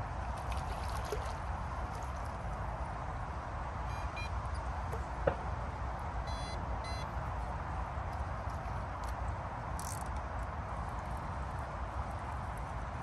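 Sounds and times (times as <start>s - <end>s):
small waves lapping: 0.0s - 3.1s
bite alarm beep: 6.3s - 7.0s.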